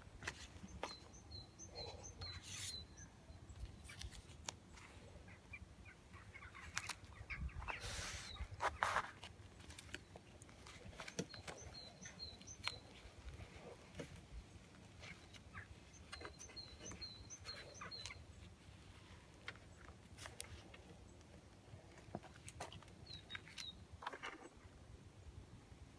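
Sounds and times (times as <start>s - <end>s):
faint bird chirps: 0.4s - 4.2s, 10.0s - 13.8s, 15.0s - 19.2s
tape and paper crinkling: 3.6s - 4.9s, 8.0s - 21.0s.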